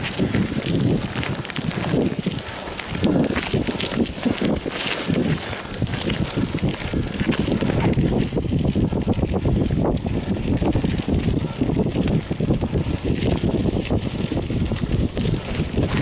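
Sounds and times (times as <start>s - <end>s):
bike rattling over dirt trail: 0.0s - 16.0s
wind buffeting microphone: 0.0s - 16.0s.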